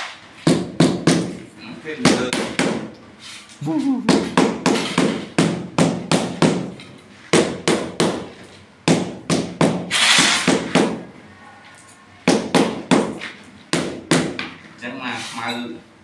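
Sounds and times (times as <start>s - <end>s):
shovel scraping sand: 9.9s - 10.5s.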